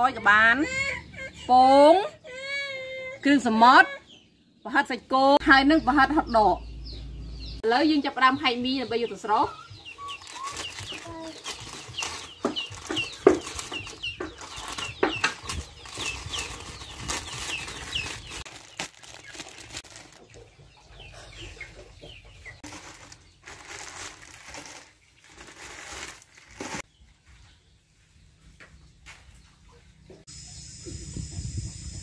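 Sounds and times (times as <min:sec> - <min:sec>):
chickens clucking: 0:08.7 - 0:18.4, 0:19.9 - 0:23.4
plastic packets crinkling and tearing: 0:10.1 - 0:20.4, 0:22.6 - 0:26.8.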